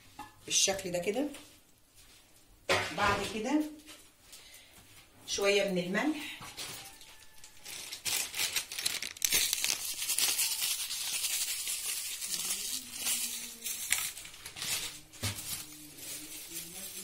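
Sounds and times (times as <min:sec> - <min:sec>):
salt sprinkling on potatoes: 0:08.6 - 0:17.0.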